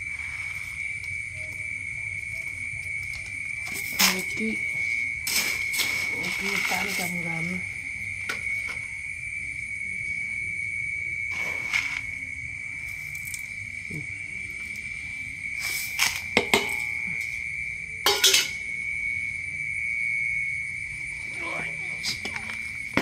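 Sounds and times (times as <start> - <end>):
insect trill: 0.0 - 23.0
salt being scooped by hand: 11.3 - 12.1.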